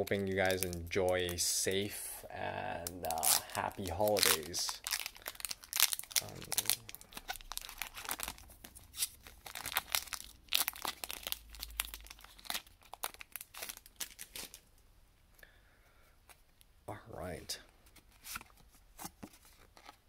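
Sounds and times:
foil wrapper crinkling and tearing: 0:02.6 - 0:14.6.

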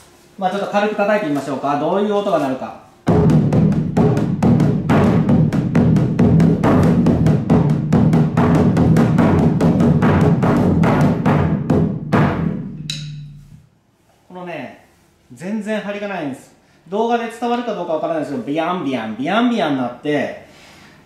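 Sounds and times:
flabby drum roll: 0:03.1 - 0:12.8.

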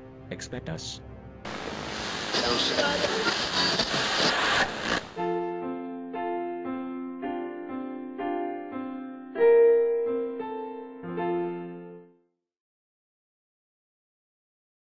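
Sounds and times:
piano-like keyboard notes and chords: 0:05.2 - 0:12.3.

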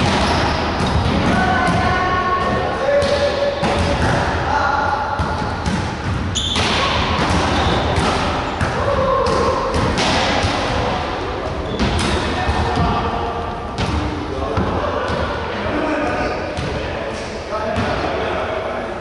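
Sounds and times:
volleyball being struck: 0:05.2 - 0:10.9.

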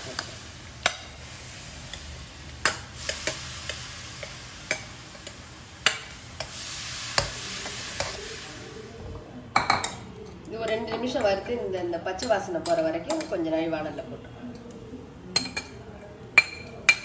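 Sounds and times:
paste sizzling in a pan: 0:00.0 - 0:09.0.

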